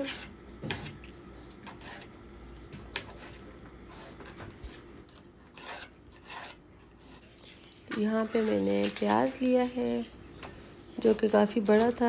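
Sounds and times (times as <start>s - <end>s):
food rustling: 6.6s - 10.2s.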